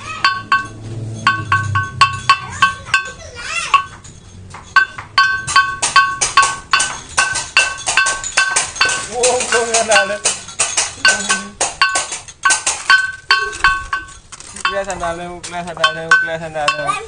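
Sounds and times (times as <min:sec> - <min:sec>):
child's voice: 0:00.0 - 0:00.3, 0:02.4 - 0:04.0
gamelan metallic strikes: 0:00.0 - 0:14.9, 0:15.8 - 0:17.0.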